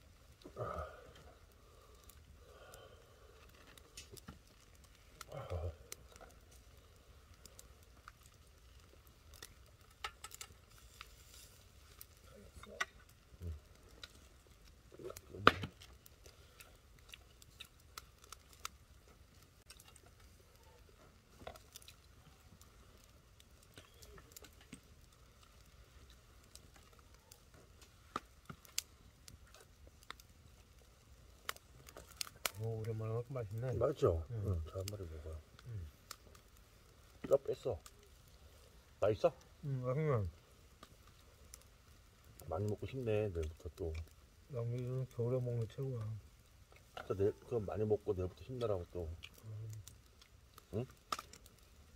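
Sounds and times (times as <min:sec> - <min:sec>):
tearing and chewing: 0:07.4 - 0:32.8, 0:49.1 - 0:51.9.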